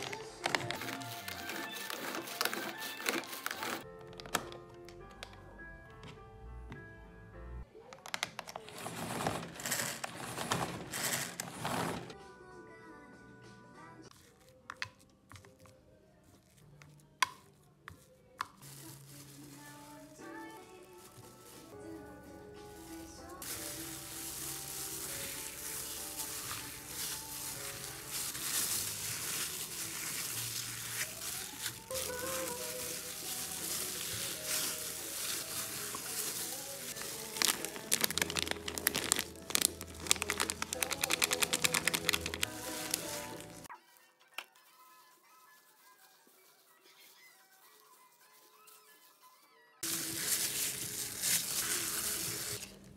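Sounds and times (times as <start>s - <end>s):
spatula scraping plastic bowl: 0.0s - 3.8s, 8.5s - 12.1s
corn starch crinkling and crackling: 0.0s - 5.6s, 7.7s - 12.2s, 14.1s - 49.2s, 49.8s - 52.9s
soft background music: 0.0s - 52.9s.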